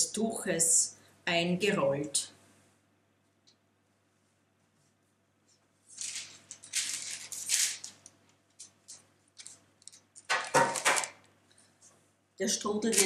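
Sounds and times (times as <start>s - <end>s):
baking paper rustling: 5.8s - 11.3s, 12.5s - 13.0s.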